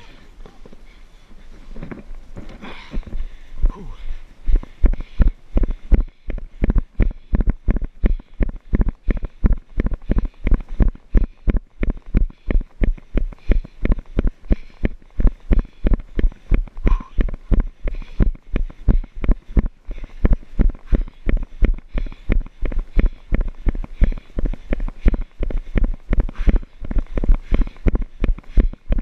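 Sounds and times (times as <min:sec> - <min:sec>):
running footfalls thudding: 0:04.5 - 0:29.0.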